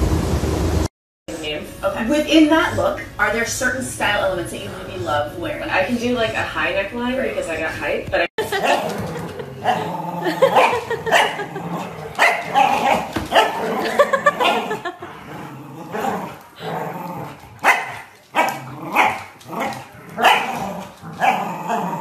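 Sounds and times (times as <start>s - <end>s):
dogs barking: 8.4s - 15.1s, 17.6s - 22.0s
dogs growling: 8.4s - 22.0s.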